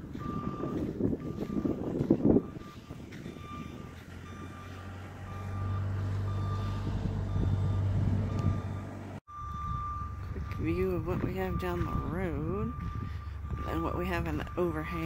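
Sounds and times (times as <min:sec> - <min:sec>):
reversing alarm beeping: 0:00.0 - 0:15.0
vehicle engine hum: 0:00.0 - 0:15.0.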